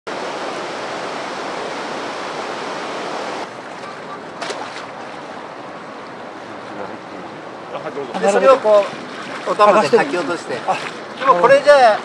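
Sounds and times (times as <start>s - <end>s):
river water running over stones: 0.1s - 12.0s
short water splashes: 3.4s - 12.0s.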